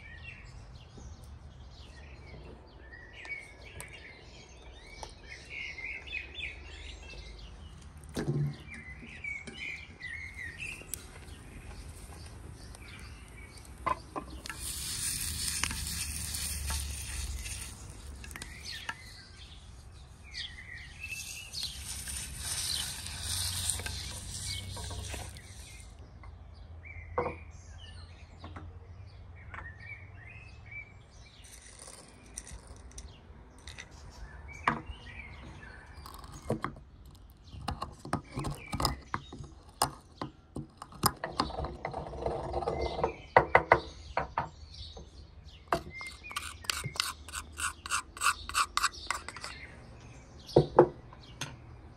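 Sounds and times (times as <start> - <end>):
birds chirping: 0.0 - 51.9
cloth scrubbing wet stone: 10.8 - 26.0, 46.0 - 49.6.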